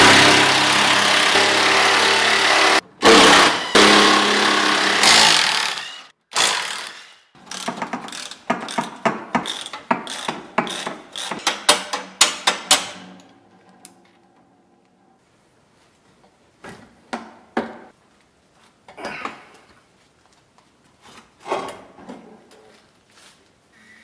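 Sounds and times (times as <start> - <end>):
hand ratchet clicking: 7.5 - 12.9.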